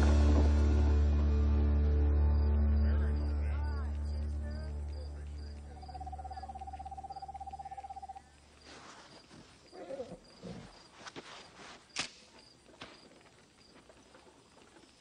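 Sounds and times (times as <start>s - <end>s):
owl trilling: 5.8s - 8.3s
faint rustles: 8.2s - 15.0s.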